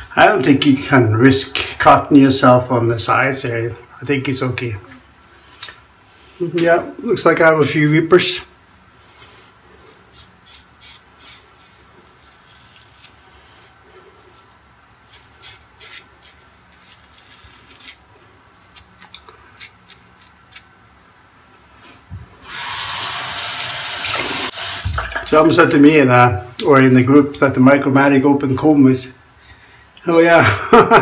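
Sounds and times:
razor scraping stubble: 9.9 - 13.4, 14.2 - 20.7
water tap running into sink: 22.4 - 25.4.

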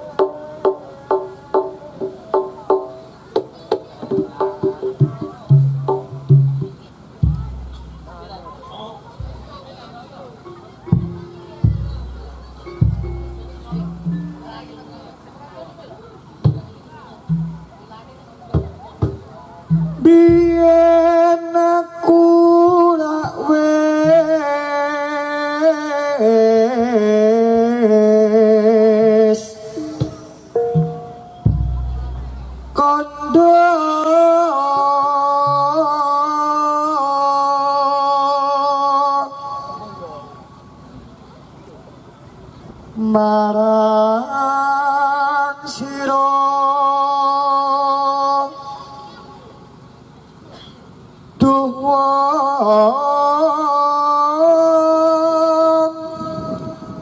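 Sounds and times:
person singing with vibrato: 19.7 - 40.8, 43.0 - 50.0, 51.2 - 57.0.

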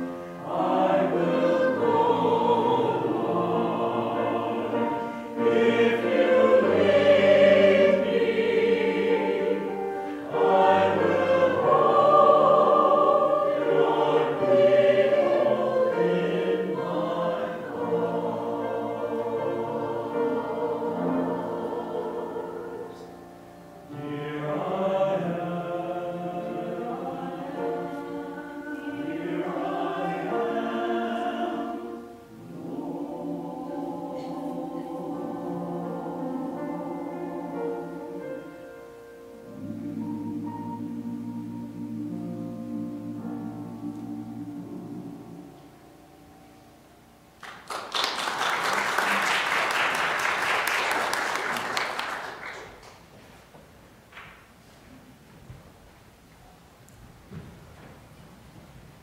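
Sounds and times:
mixed choir singing: 0.0 - 52.6.

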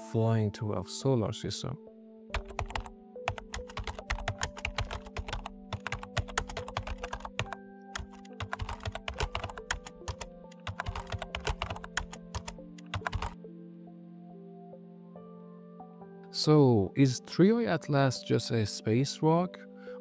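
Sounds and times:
soft background music: 0.0 - 20.0
keyboard typing clicks: 2.3 - 13.4.

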